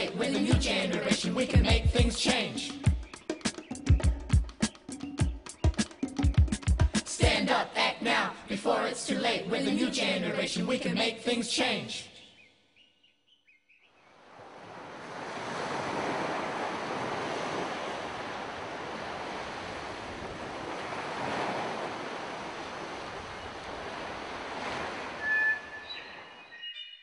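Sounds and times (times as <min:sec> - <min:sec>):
waves washing on sandy beach: 0:14.2 - 0:25.3.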